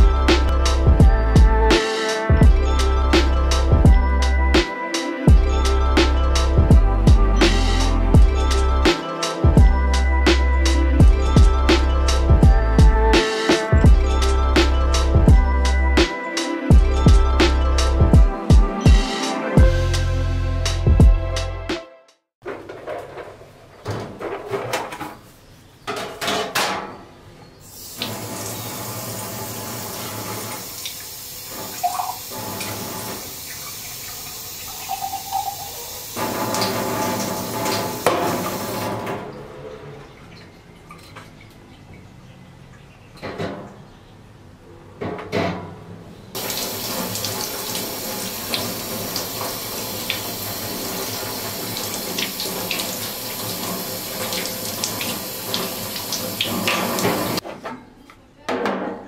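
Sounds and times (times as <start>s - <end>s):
items clattering: 22.4s - 27.0s.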